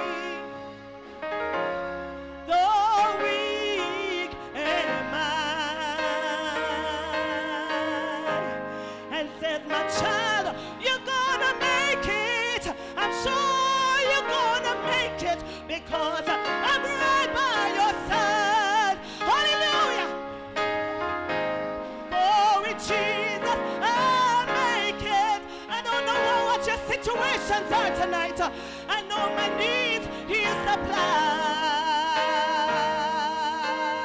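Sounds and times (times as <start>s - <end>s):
woman singing with vibrato: 0.0s - 0.6s, 2.5s - 20.2s, 22.1s - 34.0s
instrumental accompaniment: 0.0s - 34.0s.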